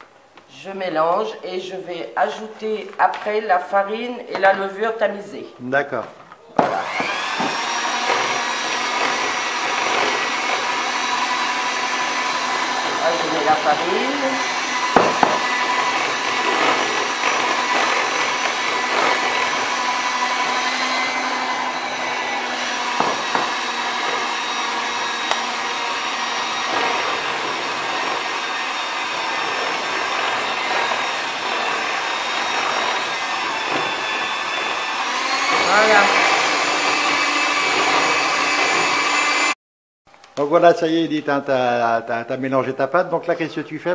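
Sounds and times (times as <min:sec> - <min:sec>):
electric hand mixer running: 0:06.6 - 0:39.6.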